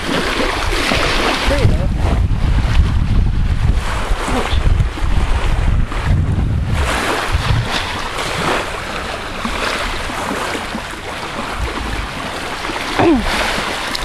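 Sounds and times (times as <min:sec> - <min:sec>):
small waves lapping on shore: 0:00.0 - 0:06.1, 0:06.7 - 0:14.0
wind buffeting microphone: 0:00.0 - 0:14.0.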